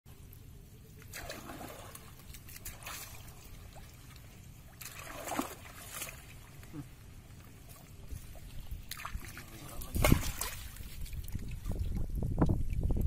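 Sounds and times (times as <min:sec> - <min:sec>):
water splashing off fishing net: 0:01.1 - 0:04.1, 0:04.7 - 0:06.4, 0:08.9 - 0:11.3.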